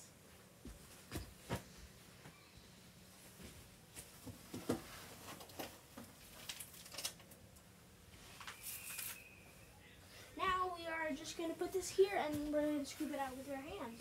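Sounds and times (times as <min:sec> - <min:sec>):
bedding rustling: 0:10.4 - 0:14.0.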